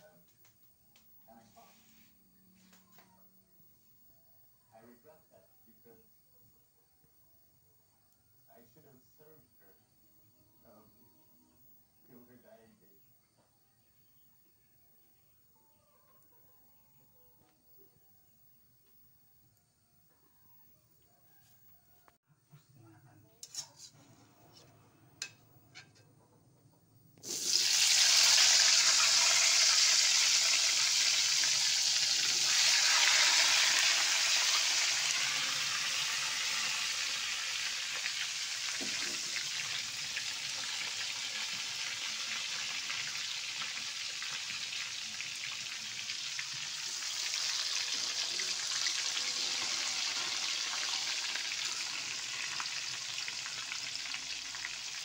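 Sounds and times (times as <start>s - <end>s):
food sizzling in hot oil: 27.2s - 55.0s.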